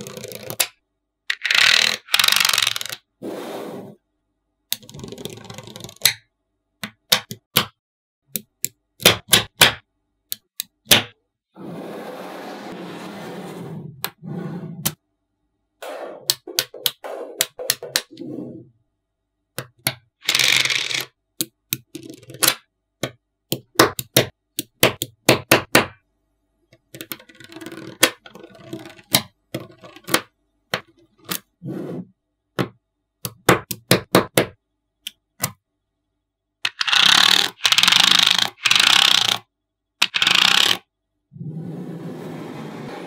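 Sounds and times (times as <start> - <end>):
balls scraping over hard surface: 11.6 - 15.0, 41.4 - 43.0
magnetic balls clicking together: 36.7 - 39.4, 40.0 - 40.8.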